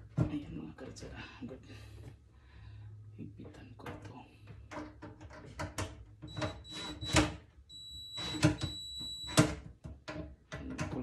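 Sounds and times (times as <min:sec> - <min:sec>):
clicks and knocks of plumbing fittings: 0:03.4 - 0:07.4, 0:08.2 - 0:11.0.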